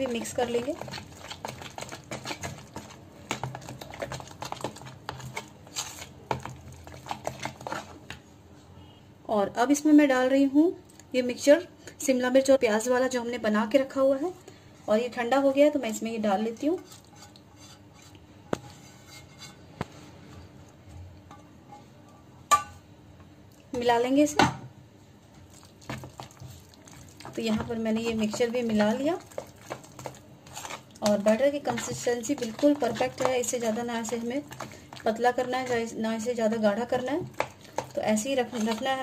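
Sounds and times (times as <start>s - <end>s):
spoon scraping plastic bowl: 0.0s - 8.2s, 25.9s - 36.3s, 36.9s - 39.0s.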